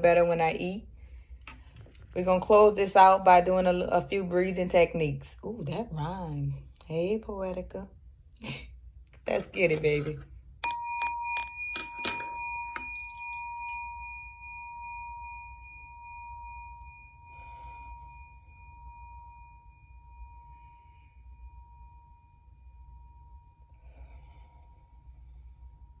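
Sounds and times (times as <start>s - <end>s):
faint breathing: 0.9s - 2.1s, 23.7s - 26.0s
metal bowl bell ringing: 10.6s - 24.2s.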